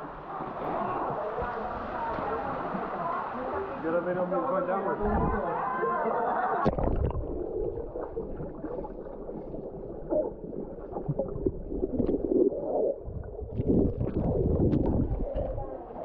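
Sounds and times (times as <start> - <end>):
bubbles gurgling: 6.6 - 16.0
water churning underwater: 6.6 - 16.0.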